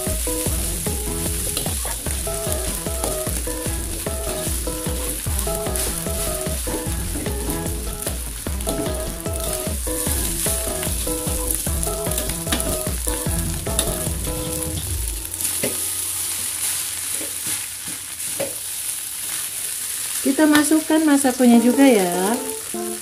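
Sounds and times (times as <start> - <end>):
background music with beat: 0.0 - 16.6
metal spatula scraping wok: 0.0 - 18.7
rice sizzling in a wok: 0.0 - 23.0.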